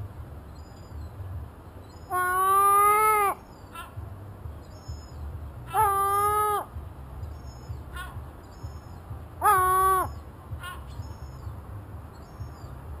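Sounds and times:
gull calling: 0:02.1 - 0:04.0, 0:05.7 - 0:06.7, 0:09.4 - 0:11.4.

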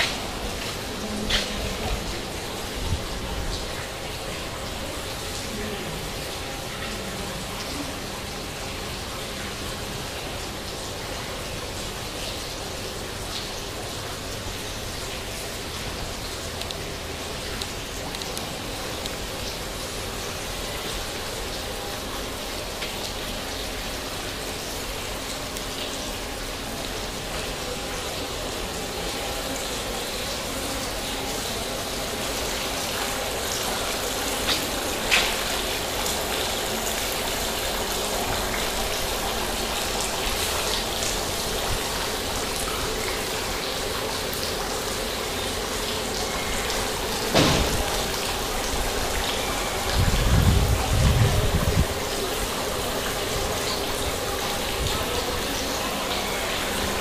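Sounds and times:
fountain water splashing: 0:00.0 - 0:57.0.

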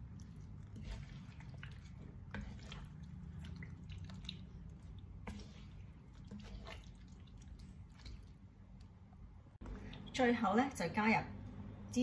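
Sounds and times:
wooden spatula stirring sauce: 0:00.0 - 0:09.0.

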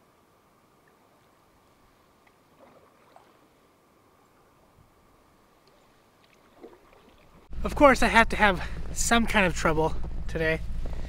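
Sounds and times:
faint steady hiss: 0:00.0 - 0:11.0
canoe paddle splashes: 0:00.8 - 0:04.8, 0:05.4 - 0:07.5.

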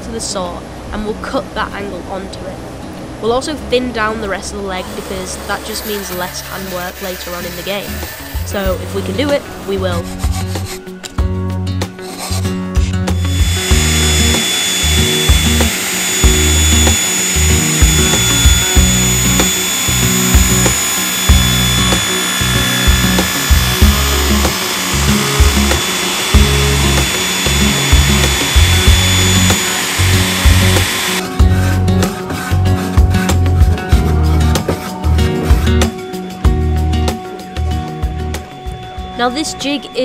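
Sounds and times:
background music: 0:03.2 - 0:40.0
woodworking machine whining: 0:04.8 - 0:09.1, 0:13.1 - 0:31.2.

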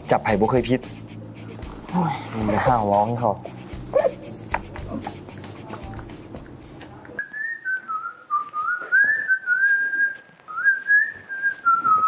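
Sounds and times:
person whistling a tune: 0:07.2 - 0:12.0.

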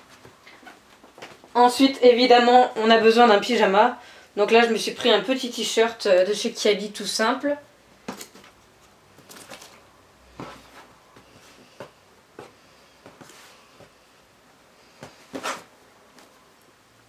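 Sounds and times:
fabric rustling: 0:14.8 - 0:16.4.

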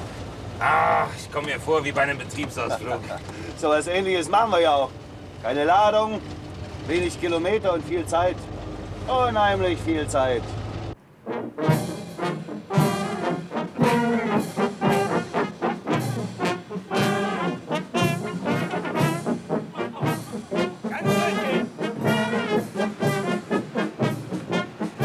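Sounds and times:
brass band playing: 0:11.1 - 0:25.0.

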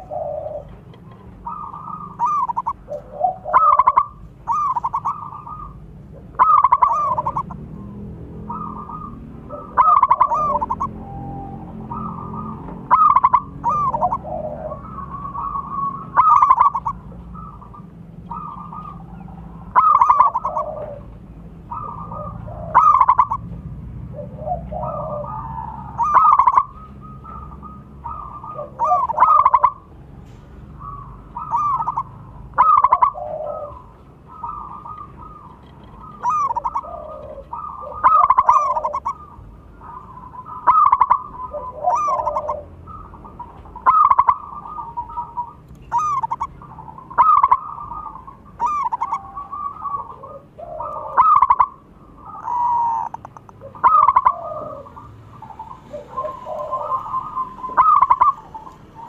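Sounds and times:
dove cooing: 0:00.0 - 0:59.0.

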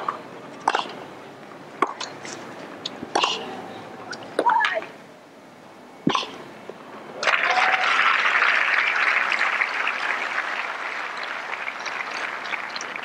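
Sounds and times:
crowd applause: 0:07.2 - 0:13.0.

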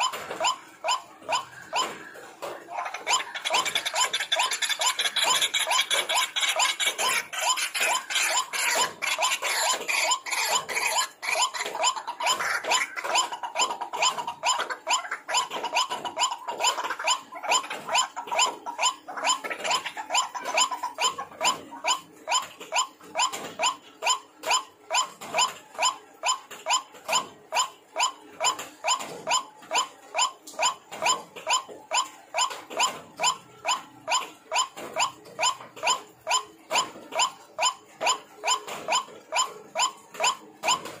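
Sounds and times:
waterhen calling harsh grunting notes: 0:00.0 - 0:21.8.

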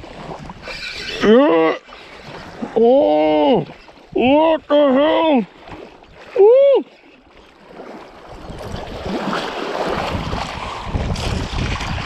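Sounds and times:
waves washing at shoreline: 0:01.8 - 0:12.0
wind buffeting microphone: 0:08.2 - 0:12.0.

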